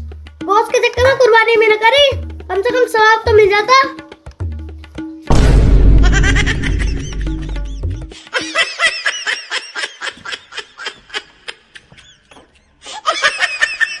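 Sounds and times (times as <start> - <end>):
music with heavy bass: 5.3 - 8.2
high-pitched snickering laughter: 8.2 - 14.0.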